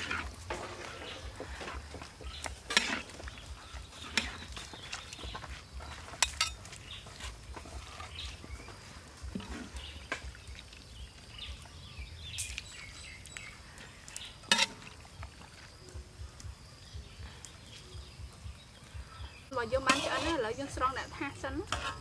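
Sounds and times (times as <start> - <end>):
metal utensils clinking on a wok: 6.0 - 7.8, 14.4 - 14.9, 19.8 - 20.4, 21.6 - 22.0.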